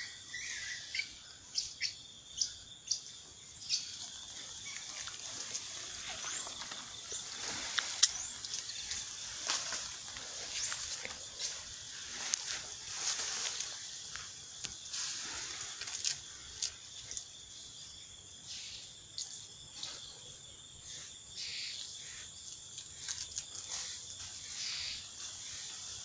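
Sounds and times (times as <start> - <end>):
bird chirp: 0.0 - 26.0
high hiss of insects: 0.0 - 26.0
leaves and twigs rustling: 3.4 - 17.4, 21.7 - 26.0.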